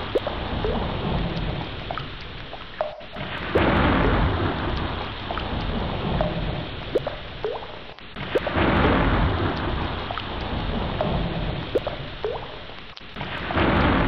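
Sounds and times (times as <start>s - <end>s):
heavy rain: 0.0s - 14.0s
low rolling thunder: 3.6s - 6.8s, 8.5s - 11.8s.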